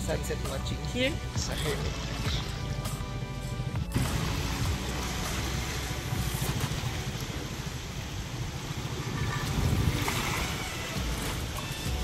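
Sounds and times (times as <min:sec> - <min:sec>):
sea waves: 0:04.0 - 0:12.0
wind buffeting microphone: 0:06.4 - 0:12.0.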